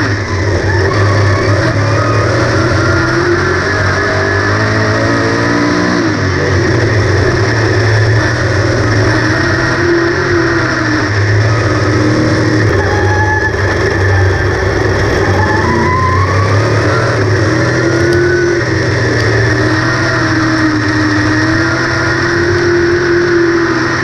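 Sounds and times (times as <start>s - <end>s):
race car engine running hard: 0.0s - 24.0s.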